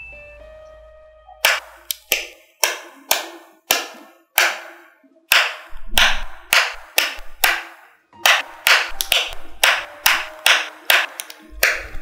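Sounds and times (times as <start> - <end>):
magnetic balls clicking together: 8.3 - 12.0.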